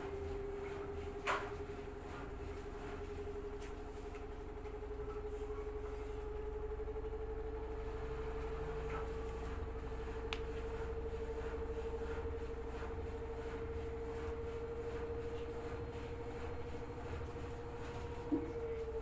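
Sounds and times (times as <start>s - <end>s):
washing machine motor whine: 0.0s - 19.0s
small tick: 10.3s - 10.5s.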